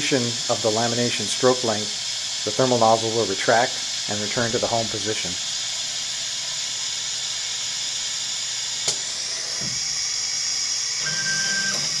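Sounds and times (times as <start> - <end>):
steady hiss of air: 0.0 - 11.0
short steady motor tone: 0.0 - 12.0.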